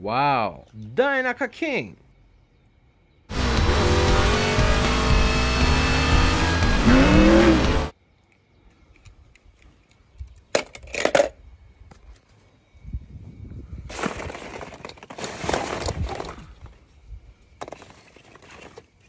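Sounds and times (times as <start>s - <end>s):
music: 3.3s - 7.9s
race car engine: 3.3s - 7.9s.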